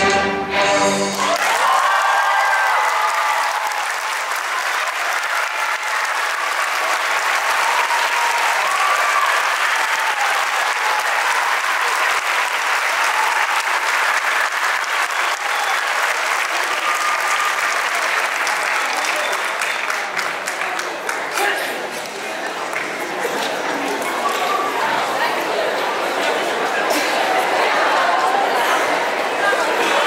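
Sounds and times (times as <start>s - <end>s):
people cheering: 1.0s - 21.7s, 26.8s - 30.0s
audience applauding: 1.1s - 25.3s.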